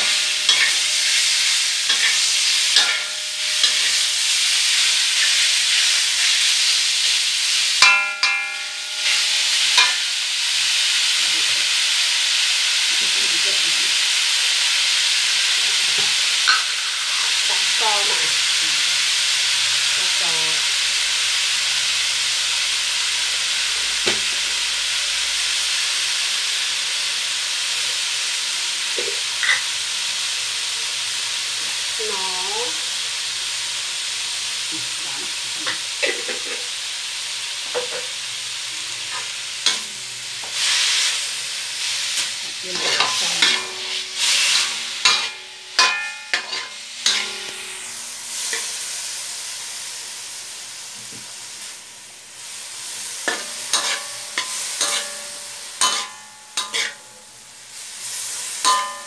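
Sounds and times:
metal spatula scraping a pan: 0.0 - 6.7, 7.8 - 10.2, 41.8 - 48.9, 53.2 - 57.1, 58.1 - 59.0
meat sizzling in a wok: 0.0 - 59.0.

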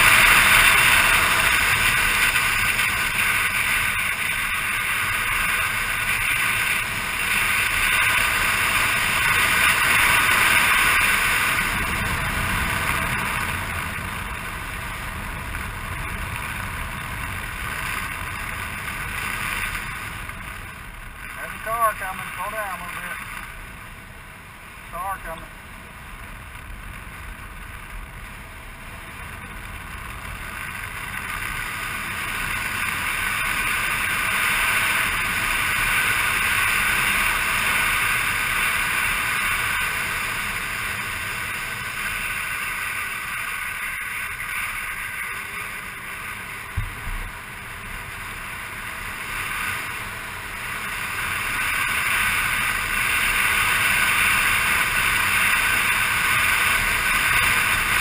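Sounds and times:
motor scooter engine: 0.0 - 58.0
wind and road noise: 0.0 - 58.0
brief thump: 46.8 - 47.3.

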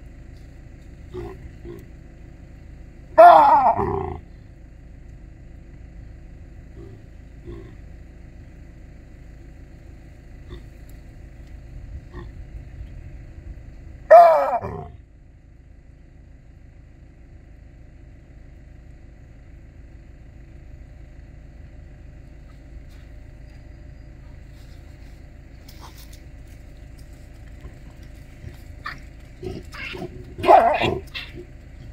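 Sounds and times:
low steady rumble: 0.0 - 31.9
baboon barking: 3.2 - 4.2, 14.1 - 14.9, 28.4 - 31.9.

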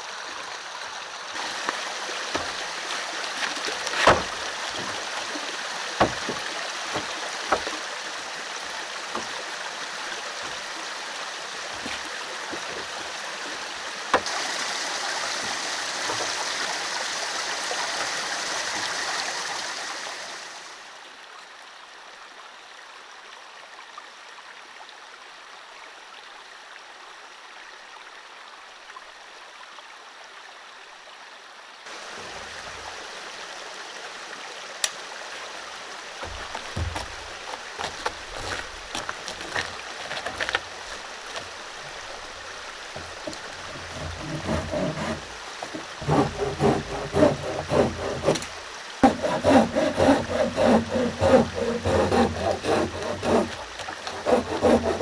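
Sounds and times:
stream water running: 0.0 - 55.0
wooden boards knocking: 3.9 - 5.0, 6.0 - 7.8, 36.2 - 38.1, 43.0 - 55.0.

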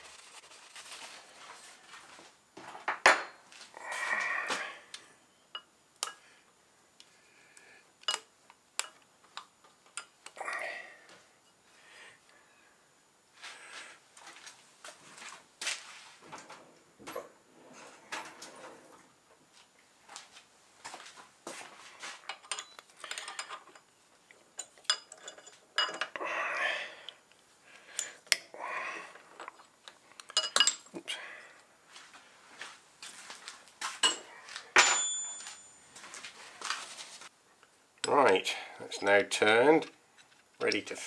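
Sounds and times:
spanner clinking on metal: 22.3 - 23.9, 24.6 - 26.2, 34.0 - 35.8.

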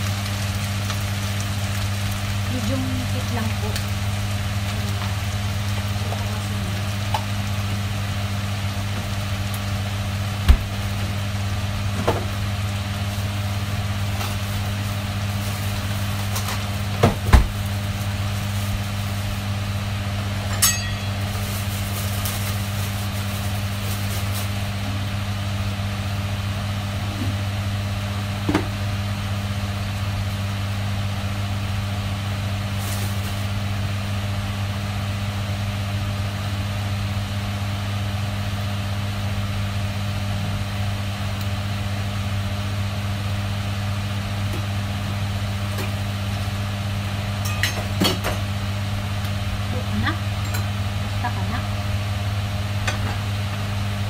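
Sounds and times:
meat sizzling in a frying pan: 0.0 - 54.0.

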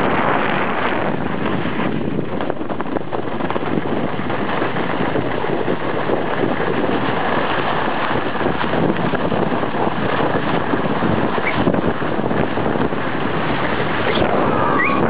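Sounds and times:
skis scraping over packed snow: 0.0 - 15.0
wind rushing on microphone: 0.0 - 15.0.

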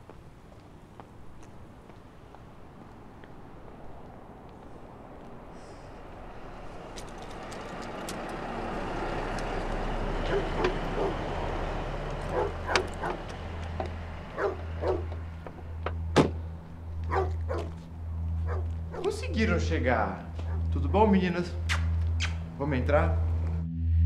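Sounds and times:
dogs barking: 10.1 - 15.3, 17.0 - 19.2, 20.4 - 20.8.

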